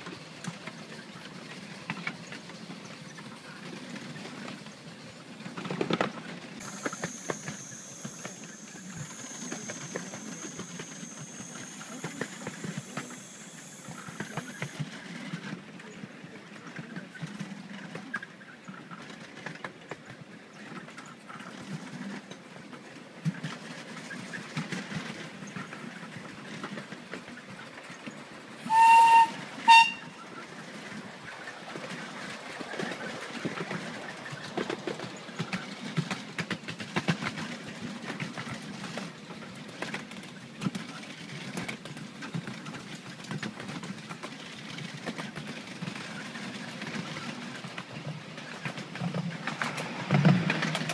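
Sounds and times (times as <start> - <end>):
train carriages rattling on track: 0.0 - 50.9
steam locomotive whistle toots: 6.6 - 14.8, 28.6 - 30.3.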